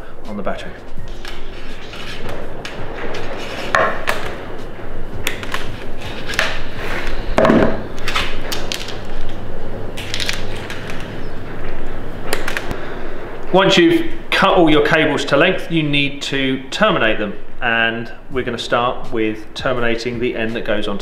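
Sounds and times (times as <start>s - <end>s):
knock on workbench: 7.4s - 7.8s.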